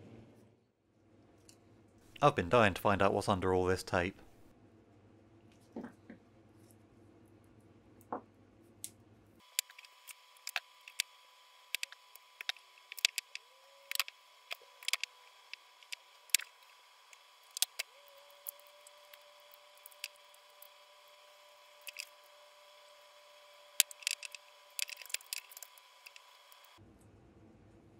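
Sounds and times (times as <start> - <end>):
tape peeling with sticky crackles: 9.4 - 22.8, 23.7 - 26.8.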